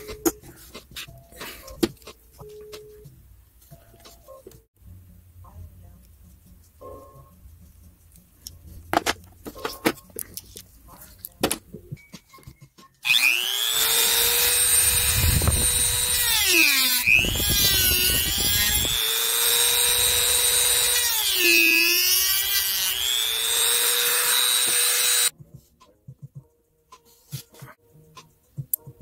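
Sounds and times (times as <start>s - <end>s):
rotary tool whining: 13.0s - 25.3s.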